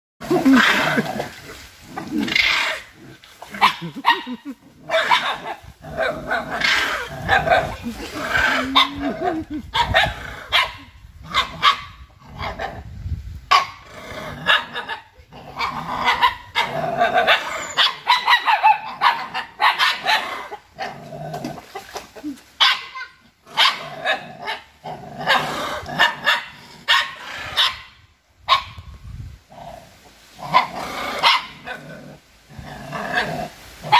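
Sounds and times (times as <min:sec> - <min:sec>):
dog barking: 0:03.6 - 0:05.6, 0:08.7 - 0:09.1, 0:09.8 - 0:12.0, 0:15.6 - 0:20.3, 0:22.6 - 0:24.6, 0:25.3 - 0:27.9, 0:28.5 - 0:28.8, 0:30.5 - 0:31.6.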